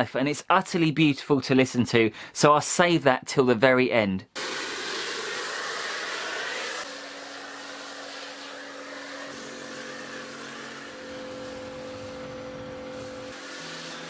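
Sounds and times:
pressure washer spraying foam: 4.4 - 14.0.

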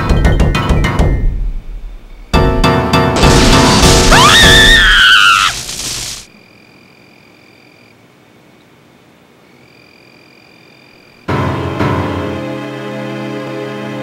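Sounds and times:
loud noise burst: 3.2 - 6.3
woman shrieking: 4.1 - 5.7.

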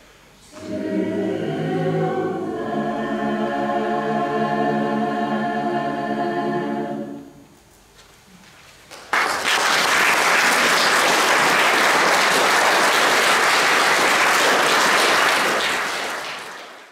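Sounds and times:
audience applauding: 8.9 - 16.9.

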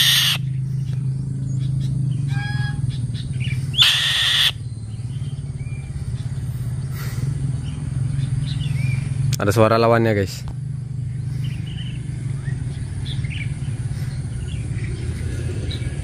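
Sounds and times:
bird screeching: 0.0 - 0.5, 2.2 - 4.6.

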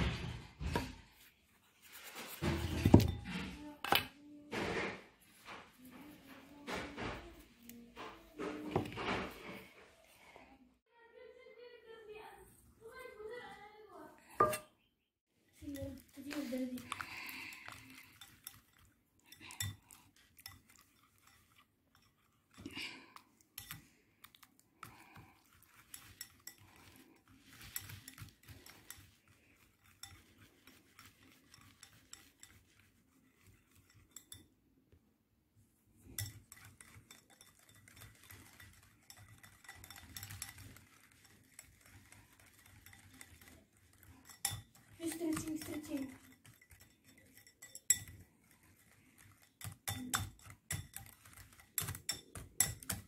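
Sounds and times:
whisk clicking against glass bowl: 15.8 - 34.5, 36.0 - 53.0.

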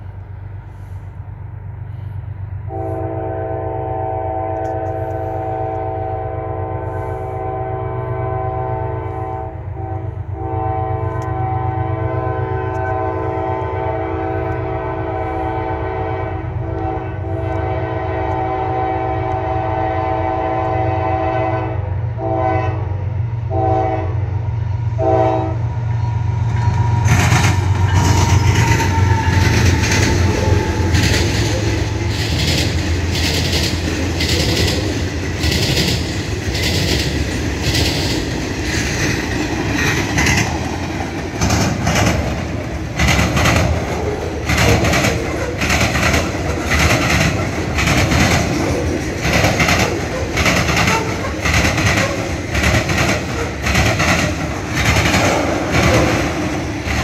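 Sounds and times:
train wheels on rail: 0.0 - 57.0
train air horn blasts: 1.9 - 25.9, 26.6 - 35.1.

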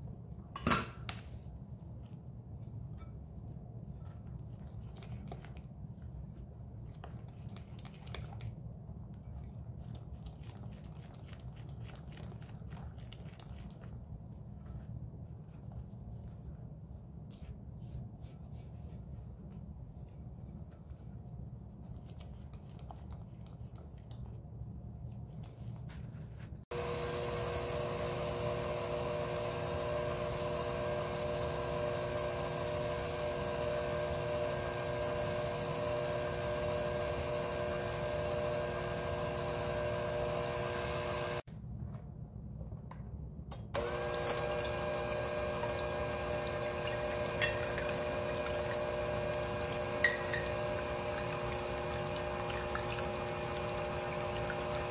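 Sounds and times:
electric hand mixer running: 26.7 - 41.4, 43.8 - 54.9.

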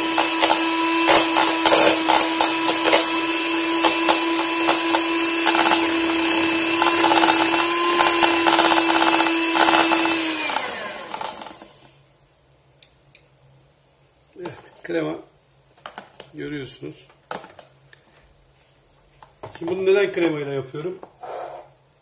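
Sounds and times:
electric hand mixer motor: 0.0 - 12.0.

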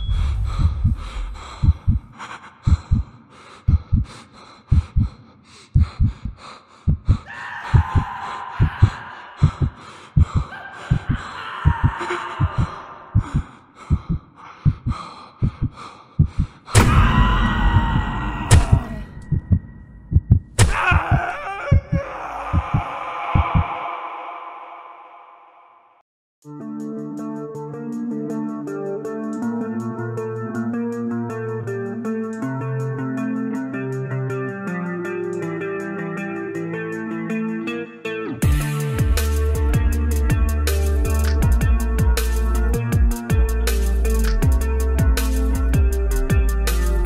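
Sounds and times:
heartbeat thumping: 0.0 - 5.2, 5.8 - 17.0, 17.7 - 20.9, 21.7 - 23.7, 41.4 - 42.2, 42.8 - 43.6, 44.4 - 45.2
eerie drone: 7.3 - 13.7, 16.8 - 20.1
sharp cracks: 16.7 - 17.2.

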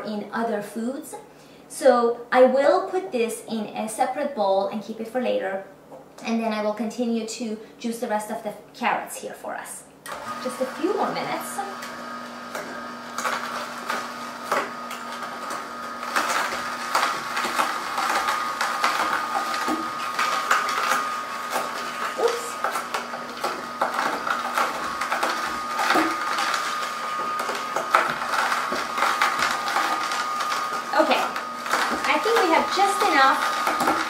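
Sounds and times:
juicer motor whine: 10.0 - 34.0
carrots crunching: 12.4 - 34.0.

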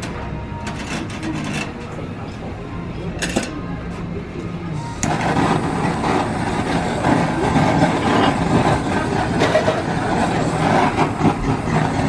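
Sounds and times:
blowtorch flame hissing: 4.7 - 12.0.

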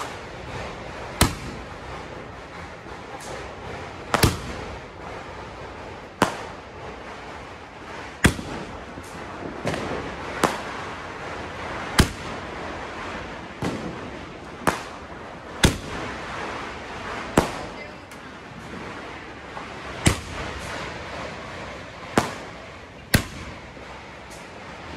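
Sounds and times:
firework bangs: 0.0 - 24.9
firework crackle and hiss: 0.0 - 24.9.

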